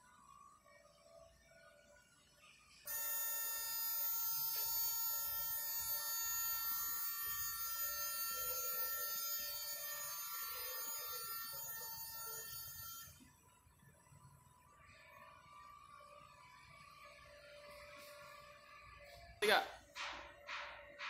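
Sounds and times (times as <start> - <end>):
alarm buzzer: 2.9 - 13.2.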